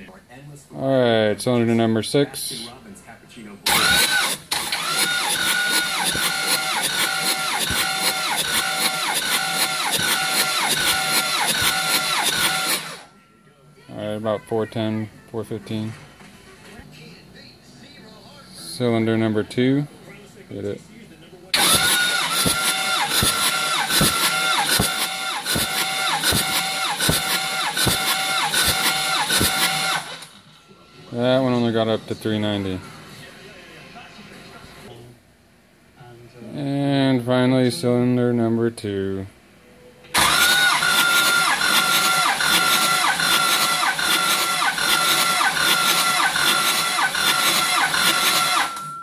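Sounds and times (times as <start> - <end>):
diesel engine cranking: 3.7 - 13.0, 21.6 - 30.3, 40.2 - 48.7.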